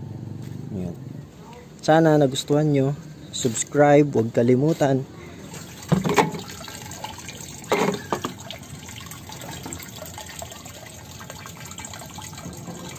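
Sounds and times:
water running into plastic drum: 5.5s - 12.9s.

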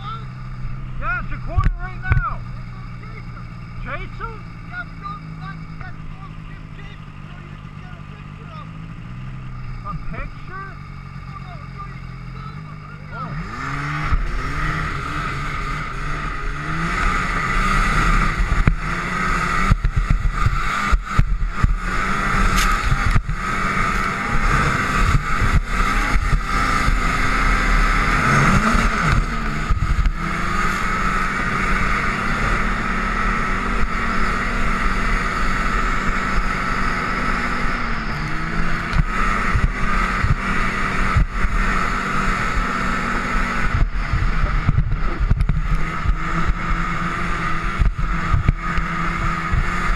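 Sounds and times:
snowmobile engine running: 0.0s - 49.9s
track rushing over snow: 13.1s - 49.9s.

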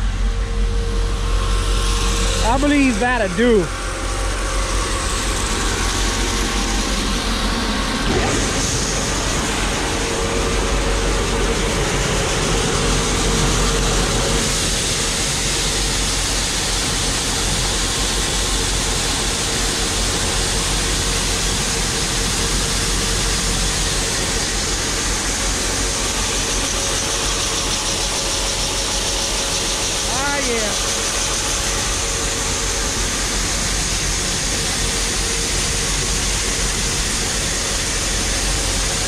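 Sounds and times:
grain auger humming and rattling: 0.0s - 39.0s.

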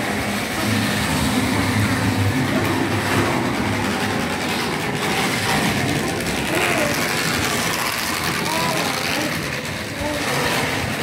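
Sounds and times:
model train wheels clattering: 0.0s - 11.0s
small electric motor running: 4.8s - 11.0s.

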